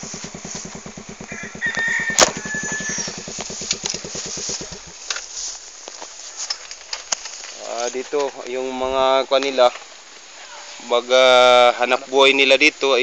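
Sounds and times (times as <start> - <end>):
motorcycle engine idling: 0.0 - 5.2
rooster crowing: 1.2 - 3.7.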